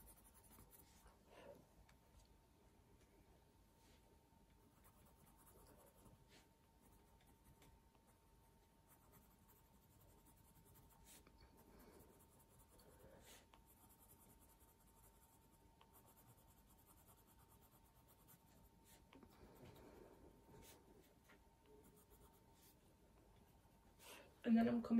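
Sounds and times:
pencil scratching on paper: 0.0 - 1.2, 4.6 - 8.2, 8.8 - 19.8, 21.6 - 22.8.

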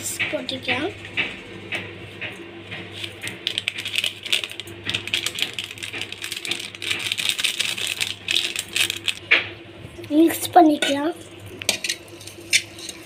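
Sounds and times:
foil sachet crinkling: 3.0 - 9.3.

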